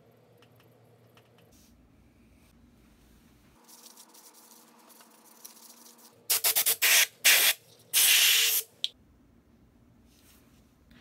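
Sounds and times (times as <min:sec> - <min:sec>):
aerosol spray hissing: 0:06.3 - 0:08.7.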